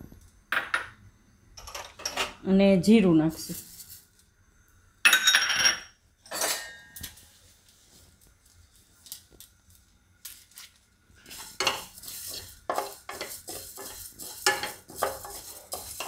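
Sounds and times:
seeds rattling in a pan: 9.0 - 16.0.

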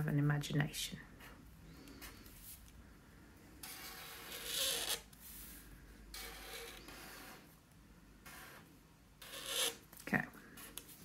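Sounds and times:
marker scratching on paper: 3.6 - 5.5, 6.1 - 7.4, 9.2 - 9.8.

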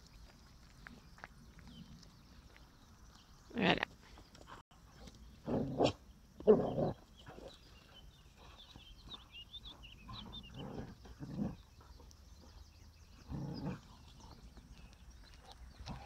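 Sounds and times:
dogs growling: 9.8 - 16.0.

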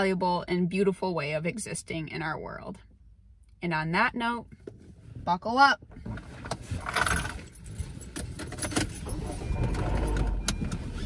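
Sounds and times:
people shifting in seats: 6.0 - 11.0
seat belt webbing sliding: 6.0 - 11.0.

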